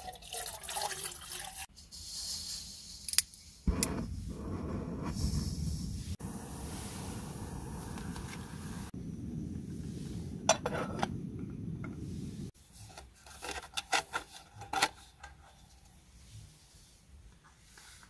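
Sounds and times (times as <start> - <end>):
steady low rush: 3.7 - 12.6.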